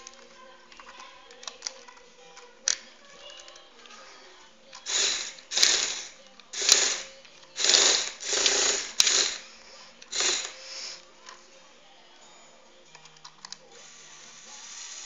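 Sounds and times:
paper shredder bursts: 0:04.9 - 0:09.4, 0:10.1 - 0:10.6.

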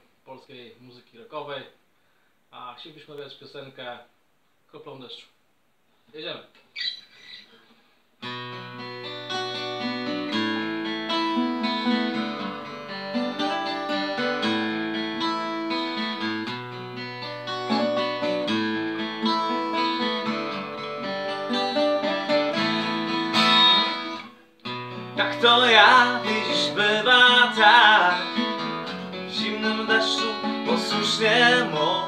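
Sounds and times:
two acoustic guitars playing: 0:08.2 - 0:32.0.

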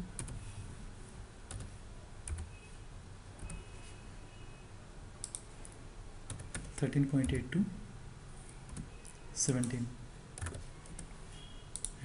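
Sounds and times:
computer keyboard keystrokes: 0:00.2 - 0:00.4, 0:01.5 - 0:01.7, 0:02.3 - 0:02.5, 0:05.2 - 0:07.4, 0:08.7 - 0:09.8, 0:10.4 - 0:11.1, 0:11.7 - 0:12.0.

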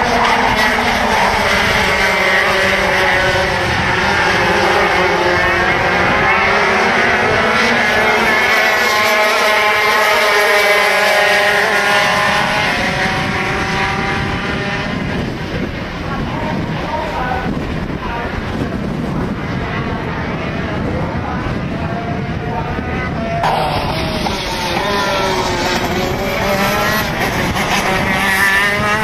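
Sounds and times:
kart engines revving: 0:00.0 - 0:29.0.

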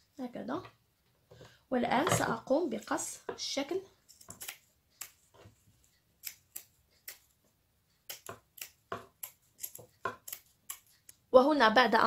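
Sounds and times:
scissors snipping fabric: 0:04.0 - 0:05.3, 0:06.2 - 0:07.4, 0:08.0 - 0:11.2.

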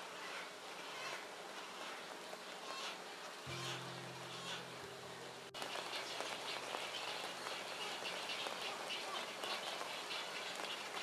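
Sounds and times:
birds chirping: 0:03.5 - 0:11.0.

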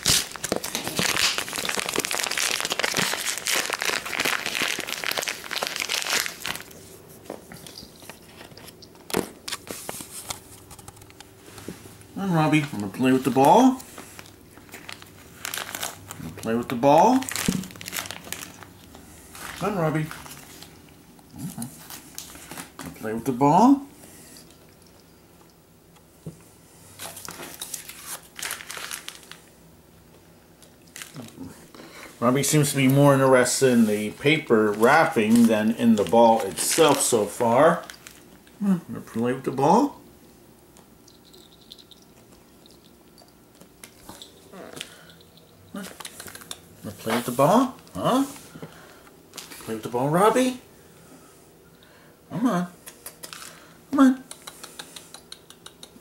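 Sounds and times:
cat crunching dry kibble: 0:00.0 - 0:06.8, 0:12.6 - 0:16.5, 0:17.1 - 0:20.7, 0:52.8 - 0:53.7
paper crinkling and tearing: 0:00.0 - 0:06.8, 0:12.6 - 0:18.7, 0:27.0 - 0:29.5, 0:33.4 - 0:38.3.

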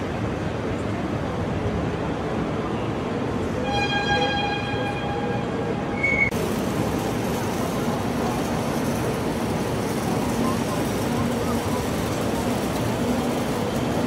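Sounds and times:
busy hall background noise: 0:00.0 - 0:14.0
electronic horn tone: 0:03.6 - 0:06.3.

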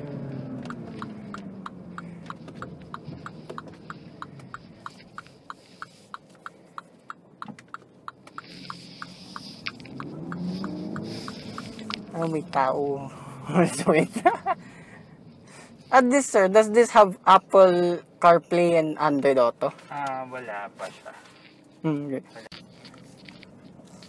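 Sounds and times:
turn signal ticking: 0:00.0 - 0:13.0
car engine running low: 0:00.0 - 0:16.0, 0:19.7 - 0:24.0.

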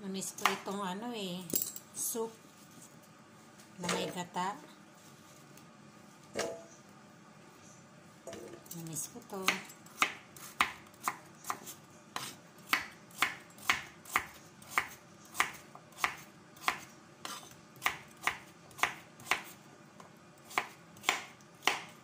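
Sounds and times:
knife chopping on wooden board: 0:09.4 - 0:19.5, 0:20.5 - 0:22.0.

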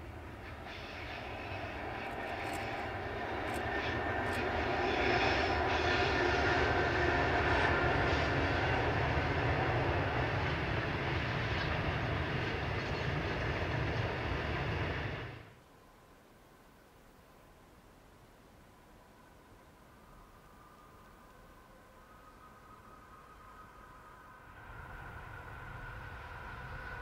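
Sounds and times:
locomotive engines droning: 0:00.0 - 0:15.6, 0:18.6 - 0:27.0.

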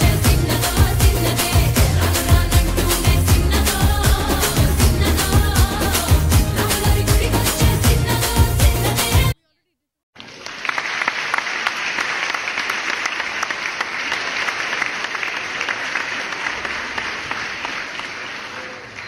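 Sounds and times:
dance music: 0:00.0 - 0:09.4
audience applauding: 0:10.2 - 0:19.0.

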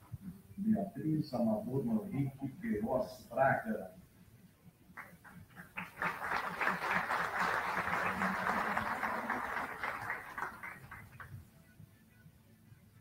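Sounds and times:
audience applauding: 0:05.0 - 0:11.4.

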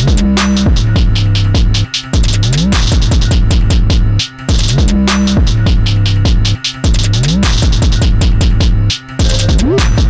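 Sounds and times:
electronic music with fast beat: 0:00.0 - 0:10.0.

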